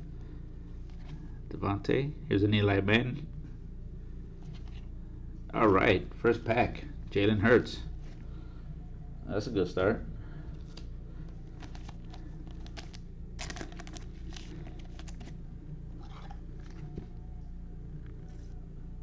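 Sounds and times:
steady low hum: 0:00.0 - 0:19.0
plastic sleeve crinkling: 0:10.6 - 0:15.4.

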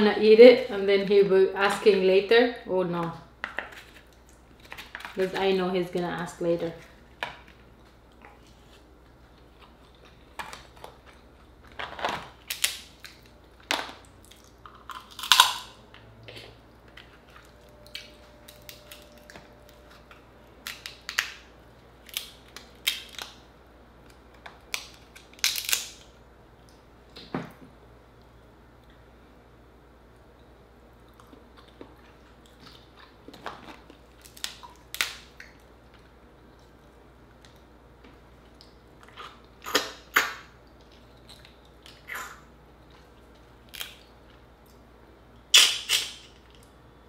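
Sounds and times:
crab shell cracking: 0:11.9 - 0:15.7, 0:20.6 - 0:23.4, 0:24.0 - 0:26.1, 0:34.2 - 0:35.6.

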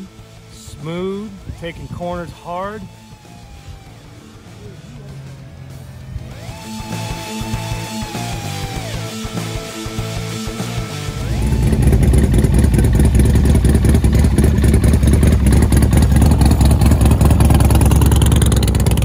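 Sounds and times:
motorcycle engine running: 0:00.0 - 0:19.0
guitar music: 0:00.8 - 0:14.7.

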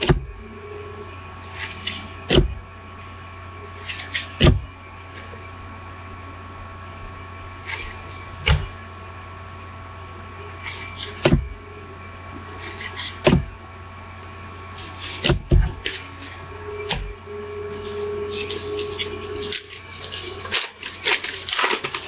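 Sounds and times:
electrical hum: 0:00.0 - 0:22.0
card rustles: 0:17.7 - 0:22.0.

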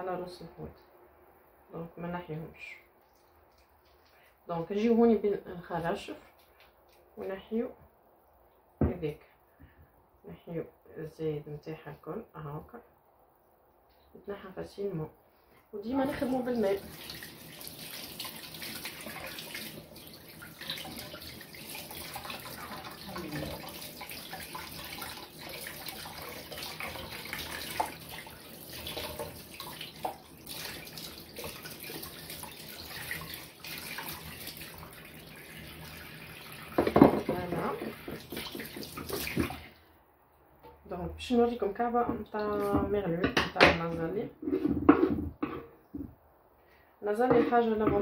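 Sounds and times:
tap running into sink: 0:36.7 - 0:39.6.

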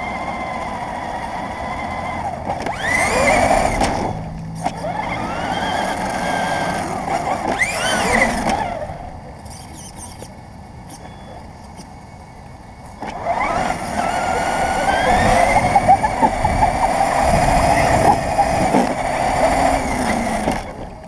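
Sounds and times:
toy car motor whining: 0:00.0 - 0:12.0, 0:12.9 - 0:21.0
steady rushing noise: 0:13.2 - 0:21.0.

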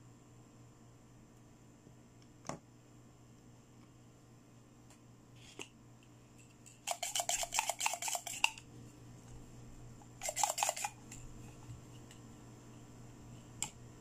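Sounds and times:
toy syringe plunger rubbing: 0:06.8 - 0:08.6, 0:10.2 - 0:11.2.

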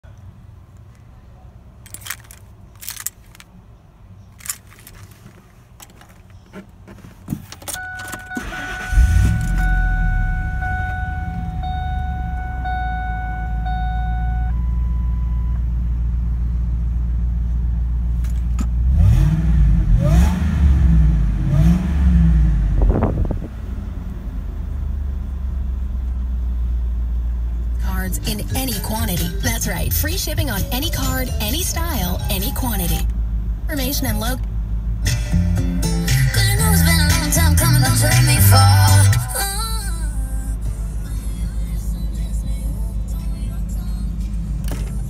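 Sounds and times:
truck engine starting and idling: 0:00.0 - 0:45.0
keys jangling: 0:01.8 - 0:03.5, 0:04.4 - 0:05.1
warning chime: 0:07.8 - 0:14.8
engine revving: 0:08.3 - 0:12.7, 0:18.8 - 0:24.2.

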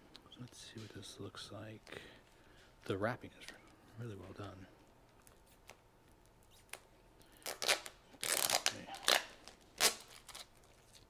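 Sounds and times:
plastic wrapping crinkling and tearing: 0:06.7 - 0:11.0.

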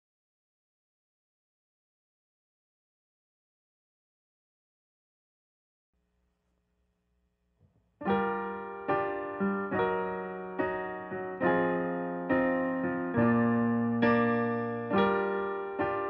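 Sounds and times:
slow piano chords: 0:08.0 - 0:16.0.

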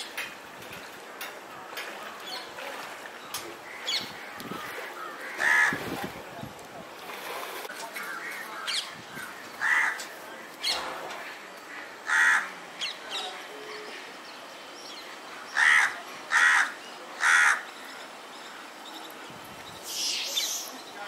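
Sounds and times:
crow cawing: 0:04.7 - 0:05.8, 0:09.6 - 0:10.0, 0:11.8 - 0:12.5, 0:15.5 - 0:17.6.

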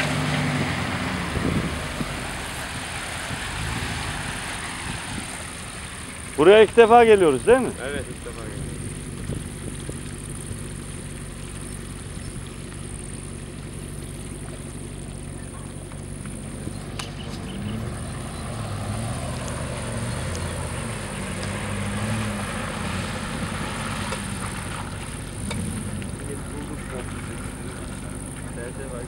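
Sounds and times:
off-road vehicle engine revving: 0:00.0 - 0:29.0.

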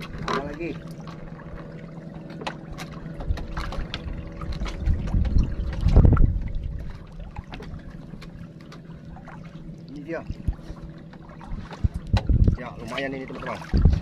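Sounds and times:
steady low hum: 0:00.0 - 0:14.0
water splashing against boat: 0:00.0 - 0:14.0
small knocks on boat: 0:02.3 - 0:09.5, 0:10.3 - 0:14.0.

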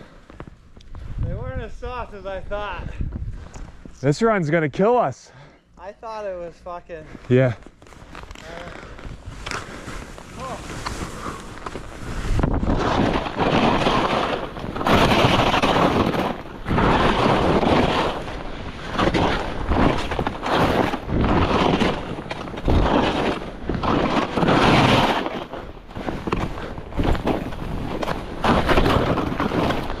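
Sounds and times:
wind buffeting microphone: 0:00.9 - 0:04.0, 0:11.2 - 0:30.0
skis scraping on snow: 0:06.2 - 0:30.0.

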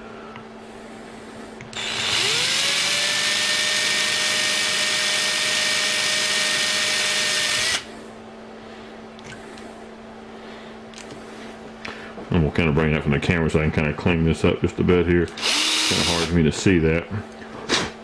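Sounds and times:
electric drill motor whine: 0:01.7 - 0:07.9, 0:15.4 - 0:16.3.

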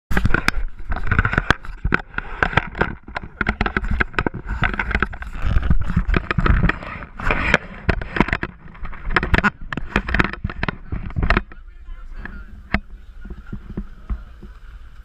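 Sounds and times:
wind rumbling on microphone: 0:00.1 - 0:15.0.

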